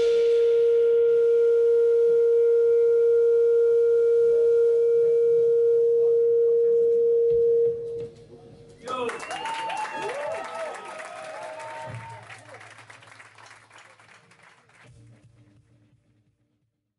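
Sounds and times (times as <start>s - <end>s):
sustained musical tone: 0.0s - 8.7s.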